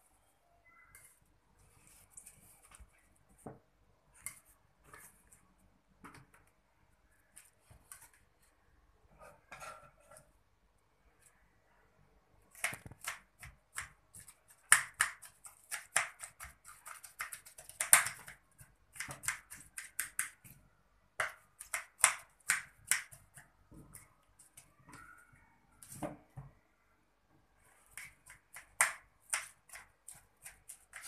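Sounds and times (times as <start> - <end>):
knife chopping lettuce: 12.5 - 20.5, 21.2 - 24.6, 27.9 - 31.0.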